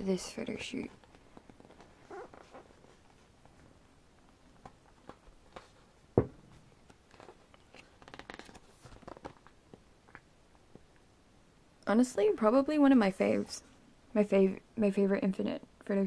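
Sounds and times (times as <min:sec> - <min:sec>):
page turning over: 0:01.0 - 0:03.2, 0:06.8 - 0:09.6
paper pages rustling: 0:01.0 - 0:03.6, 0:04.6 - 0:05.9, 0:06.8 - 0:09.8.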